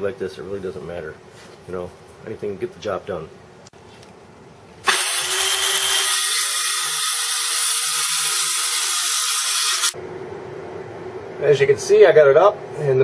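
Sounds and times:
circular saw cutting wood: 4.9s - 10.0s.

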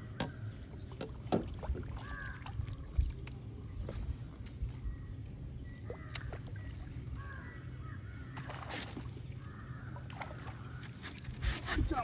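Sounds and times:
bird calling: 4.8s - 11.3s.

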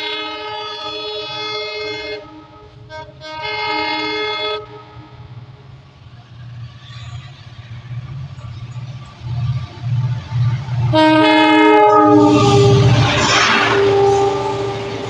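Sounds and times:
locomotive air horn: 0.0s - 5.3s, 10.8s - 15.0s
train rumble: 0.0s - 15.0s.

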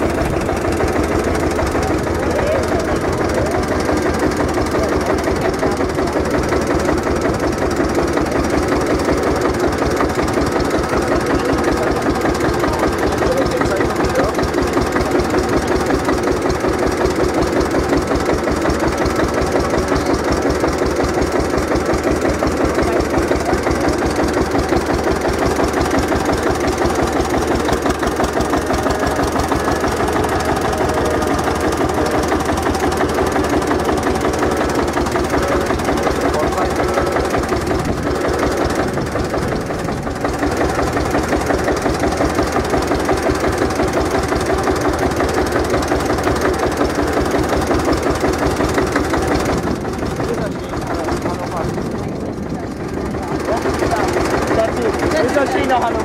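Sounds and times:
tractor engine idling: 0.0s - 56.0s.

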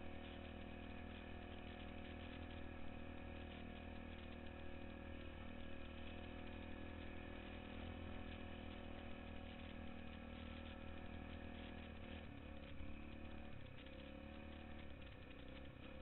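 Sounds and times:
atv engine running: 0.0s - 16.0s.

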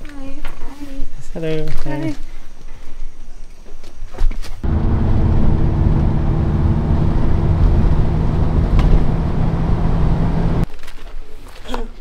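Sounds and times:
car engine rumble: 4.6s - 10.7s
road noise inside car: 4.6s - 10.7s.

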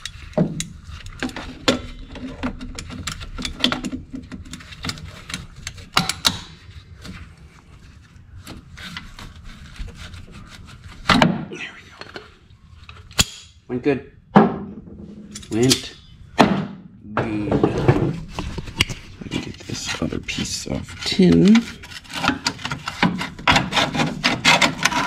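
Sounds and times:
pliers clinking and scraping metal: 15.2s - 16.2s.

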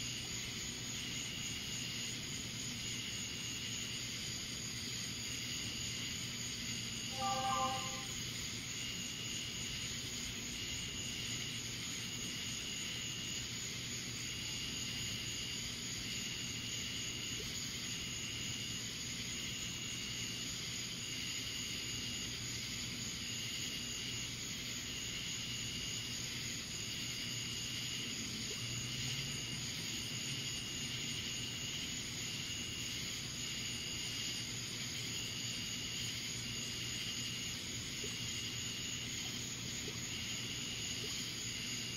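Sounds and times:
insect chirping call: 0.0s - 41.9s
insects trilling: 0.0s - 41.9s
low steady hum: 7.1s - 8.2s.

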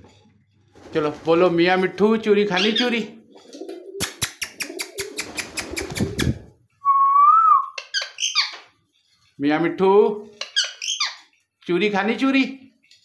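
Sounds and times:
parakeet high chirps: 2.6s - 2.9s, 7.7s - 8.7s, 10.4s - 11.3s
parakeet sharp clicks: 4.0s - 6.3s.

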